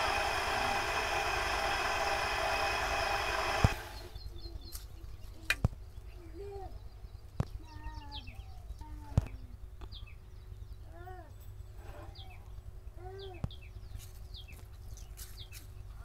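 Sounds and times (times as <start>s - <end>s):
potter's wheel humming: 0.0s - 4.3s.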